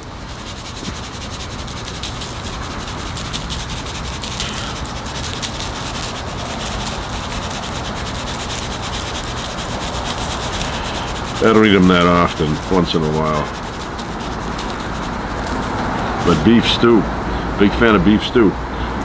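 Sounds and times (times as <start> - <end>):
seasoning shaker rattling: 0.0 - 18.3.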